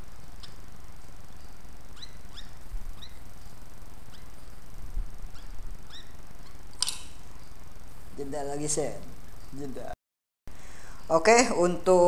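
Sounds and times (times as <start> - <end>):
bird chirping: 0.3 - 4.6, 5.2 - 7.5.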